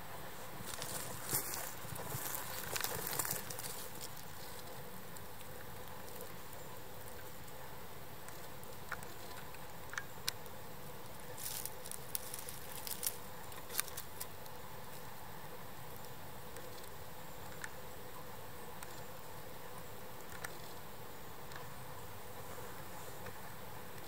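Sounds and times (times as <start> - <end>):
steady faint hiss: 0.0 - 24.0
dry leaves crackling and rustling: 0.6 - 6.4, 11.1 - 14.5.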